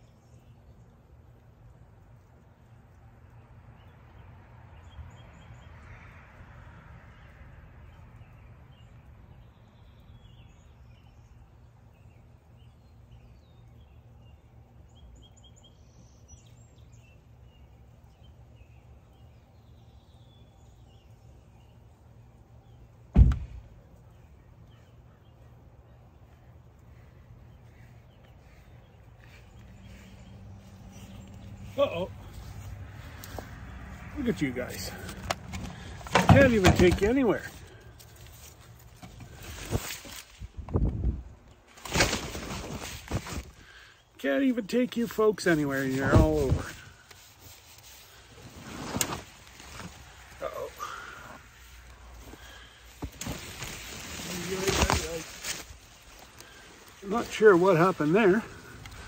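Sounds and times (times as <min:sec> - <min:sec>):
loud sharp thump: 0:23.1 - 0:23.7.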